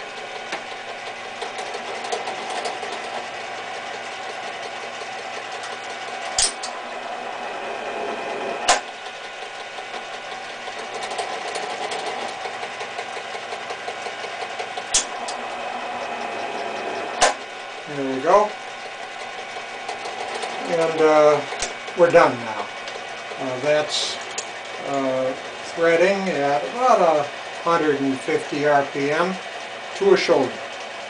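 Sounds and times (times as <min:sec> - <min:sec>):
lathe mechanical whirr: 0:00.0 - 0:31.0
sharp clutch clacks: 0:00.5 - 0:03.2, 0:10.8 - 0:15.4.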